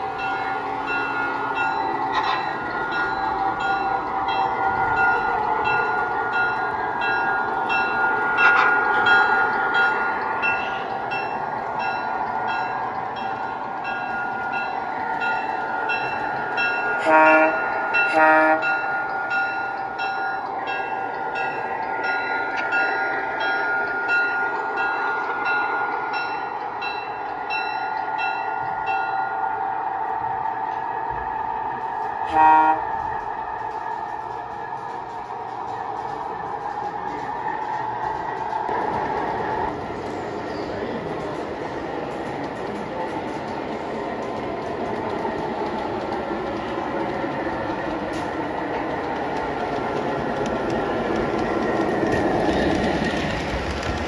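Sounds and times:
model train engine drone: 0:00.0 - 0:54.0
clicking from track: 0:30.6 - 0:54.0.

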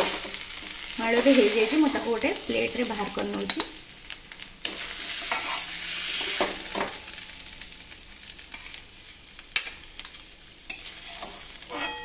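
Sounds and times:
light sizzle from hot pan: 0:00.0 - 0:12.0
metal spatula scraping pan: 0:04.7 - 0:06.6, 0:10.7 - 0:12.0.

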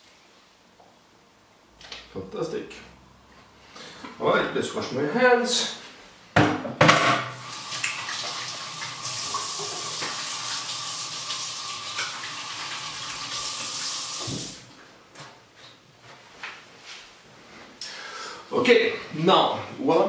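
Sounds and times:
tap water running: 0:07.3 - 0:14.7.

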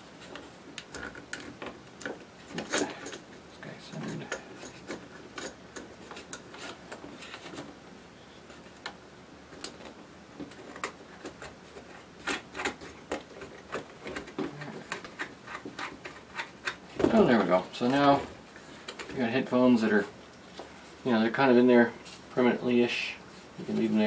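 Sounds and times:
hard plastic clicking and rubbing: 0:09.6 - 0:18.1.

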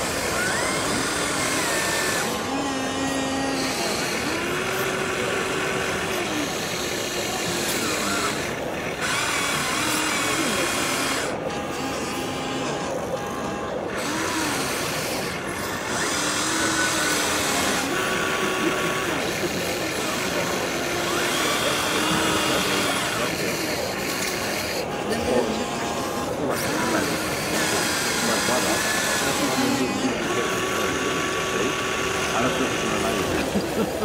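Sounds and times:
small electric motors whining: 0:00.0 - 0:34.0
steady noisy background: 0:00.0 - 0:34.0.

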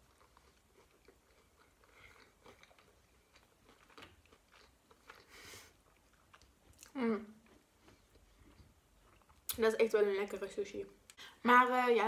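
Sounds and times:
crunchy chewing: 0:00.0 - 0:09.5.

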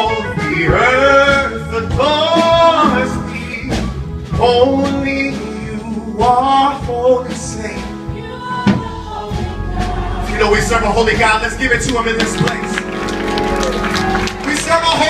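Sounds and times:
man singing gospel lead: 0:00.0 - 0:12.9
instrumental accompaniment: 0:00.0 - 0:15.0
backing singers: 0:07.6 - 0:15.0.

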